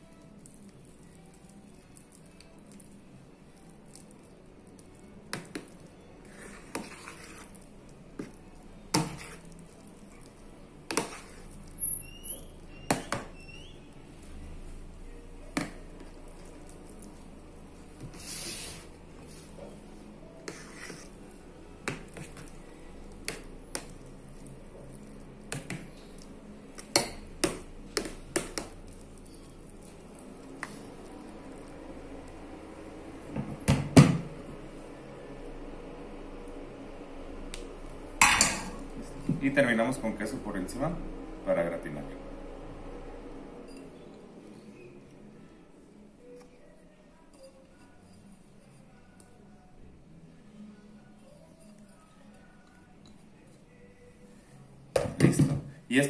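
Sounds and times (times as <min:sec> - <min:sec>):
scraping and squishing filling: 0:00.0 - 0:33.3.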